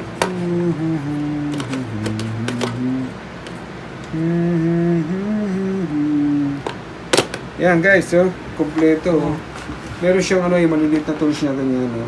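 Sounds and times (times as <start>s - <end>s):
person humming: 0.0s - 3.2s, 4.0s - 6.8s
plastic tools clicking in case: 1.5s - 2.8s.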